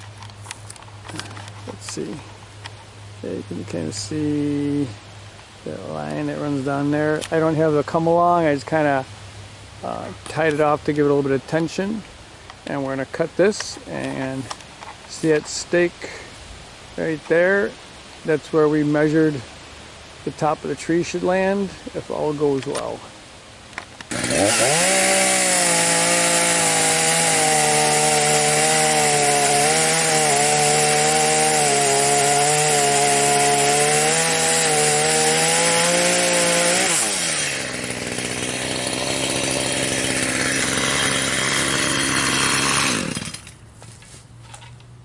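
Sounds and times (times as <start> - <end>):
chainsaw cutting wood: 23.9 - 43.7.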